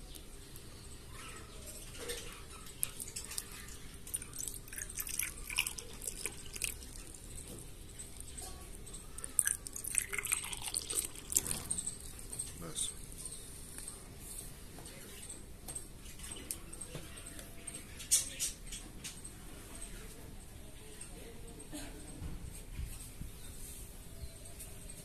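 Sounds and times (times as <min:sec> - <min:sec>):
water pouring into clay pot: 0:02.8 - 0:12.2.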